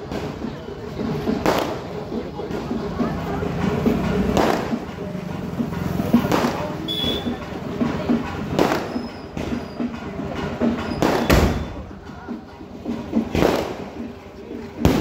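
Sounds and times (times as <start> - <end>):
fireworks banging: 0.0 - 12.0, 12.8 - 15.0.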